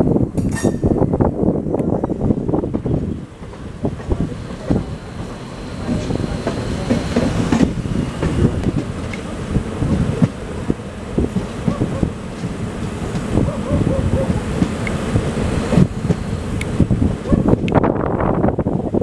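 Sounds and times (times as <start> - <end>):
train wheels clattering over rail joints: 2.6 - 16.8.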